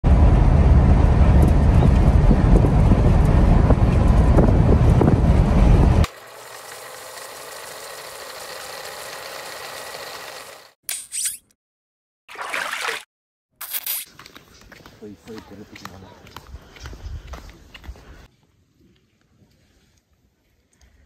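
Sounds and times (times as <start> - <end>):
van engine and road rumble: 0.0 - 6.1.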